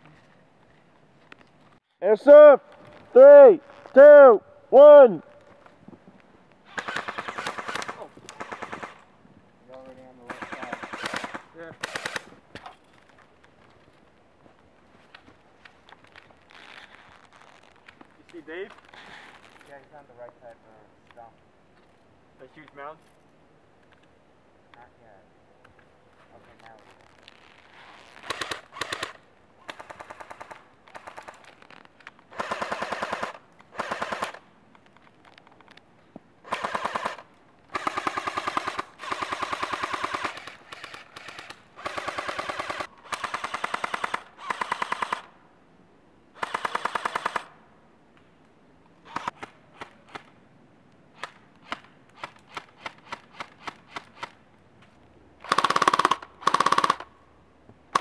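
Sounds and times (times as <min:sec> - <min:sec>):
airsoft rifles firing: 0:06.7 - 0:09.0, 0:10.2 - 0:12.3, 0:32.3 - 0:34.4, 0:36.4 - 0:45.3, 0:46.4 - 0:47.5, 0:55.4 - 0:57.1.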